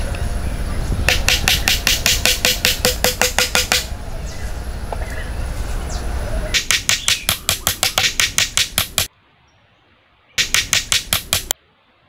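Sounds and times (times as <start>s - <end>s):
hatchet striking wooden stake: 1.1s - 3.9s, 6.6s - 9.1s, 10.4s - 11.6s.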